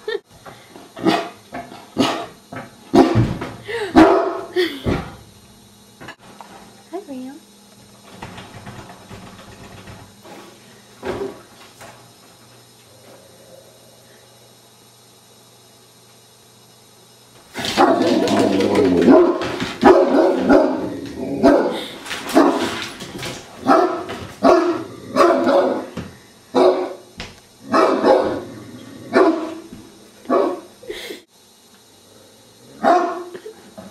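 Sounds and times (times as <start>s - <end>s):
large dog barking: 4.0s - 4.5s, 19.0s - 22.7s, 23.6s - 25.9s, 26.5s - 27.0s, 27.6s - 28.5s, 29.1s - 29.6s, 30.3s - 30.7s, 32.8s - 33.3s.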